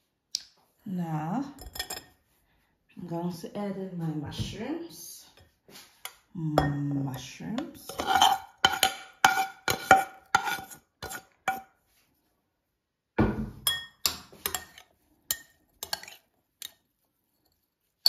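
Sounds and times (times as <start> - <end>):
thump: 13.2 - 13.6
spoon clinking against glass bowl: 13.6 - 16.8.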